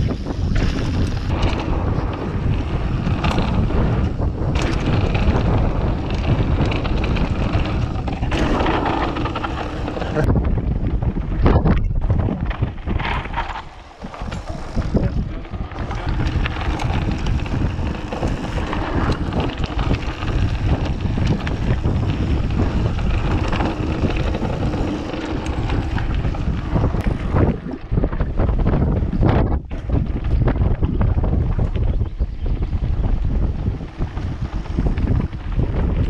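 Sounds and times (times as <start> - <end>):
bike knocking and rattling: 0.0 - 36.0
bike tyre rumble: 0.0 - 36.0
wind rushing over microphone: 0.0 - 36.0.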